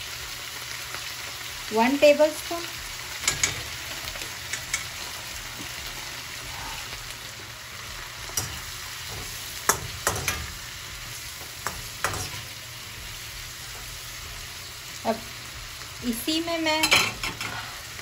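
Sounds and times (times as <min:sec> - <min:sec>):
vegetables sizzling in oil: 0:00.0 - 0:18.0
metal spatula scraping a wok: 0:08.3 - 0:12.6.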